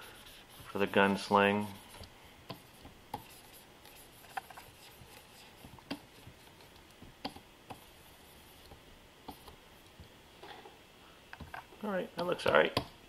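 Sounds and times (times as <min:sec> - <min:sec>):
room hiss: 0:00.0 - 0:13.0
stylus tapping and scraping: 0:01.6 - 0:10.1.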